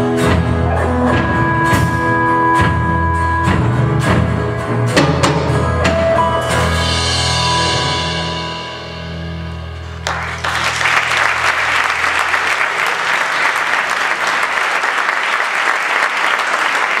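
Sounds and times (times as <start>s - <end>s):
band's chord ringing: 0.0s - 12.4s
audience applauding: 10.0s - 17.0s.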